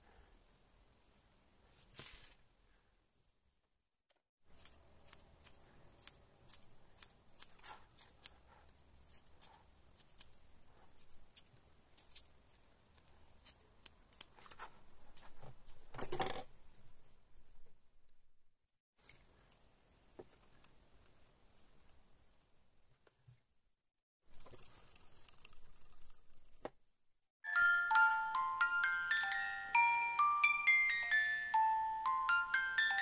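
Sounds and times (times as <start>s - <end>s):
small scissors snipping: 4.6s - 10.4s.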